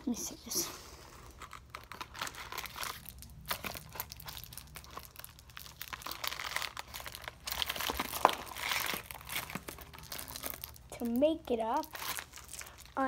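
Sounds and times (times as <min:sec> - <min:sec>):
packaging crinkling and rustling: 0:01.1 - 0:13.0.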